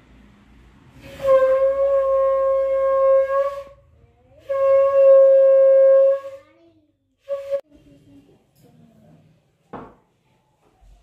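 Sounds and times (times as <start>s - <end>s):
conch shell blasts: 1.0s - 3.8s.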